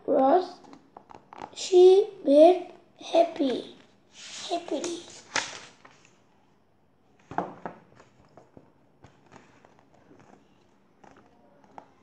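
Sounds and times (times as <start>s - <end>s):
book page rustling: 4.1s - 6.2s, 7.9s - 12.0s.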